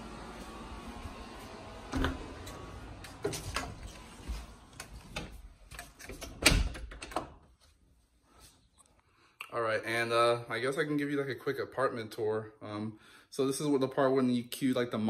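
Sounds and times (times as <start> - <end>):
door opening and shutting: 1.8 - 7.4.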